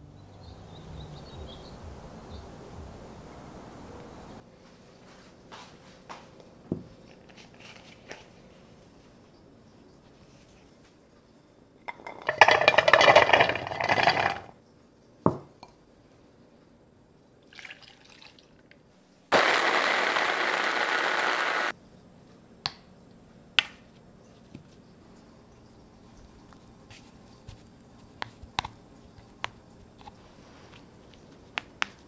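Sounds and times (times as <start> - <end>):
garlic cloves clattering into bowl: 11.9 - 14.5
food chopper motor running: 19.3 - 21.7.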